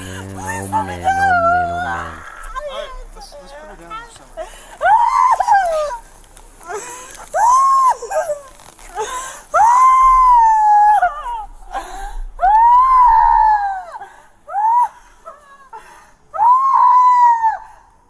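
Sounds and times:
woman crying out: 0.0s - 3.0s
woman screaming: 0.0s - 3.0s, 4.8s - 6.0s, 9.6s - 11.6s, 12.4s - 15.0s, 16.4s - 17.6s.

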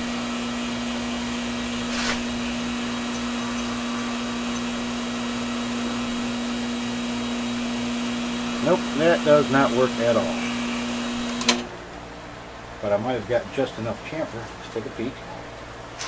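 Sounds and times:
metal lathe motor hum: 0.0s - 11.7s
short hiss: 1.9s - 2.3s.

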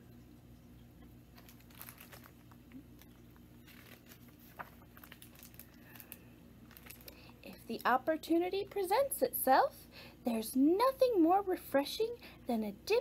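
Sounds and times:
low room hum: 0.0s - 13.0s
paper rustling: 1.3s - 7.2s.

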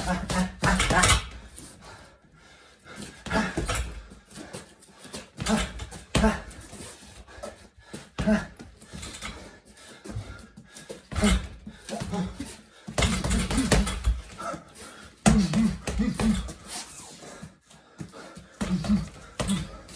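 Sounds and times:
gloved punches on heavy bag: 0.0s - 1.4s, 5.4s - 6.6s, 8.2s - 9.3s, 11.1s - 14.3s, 15.2s - 16.6s, 18.6s - 19.9s
grunted exhalations: 0.0s - 1.5s, 3.0s - 4.1s, 5.3s - 9.6s, 11.0s - 17.0s, 18.1s - 19.9s.

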